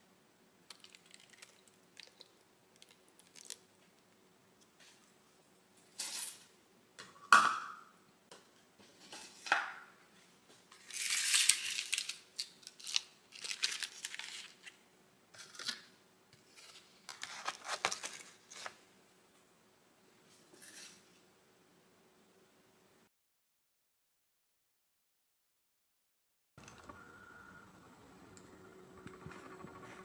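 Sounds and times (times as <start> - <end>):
rustling plastic scrapes: 16.4 - 18.8.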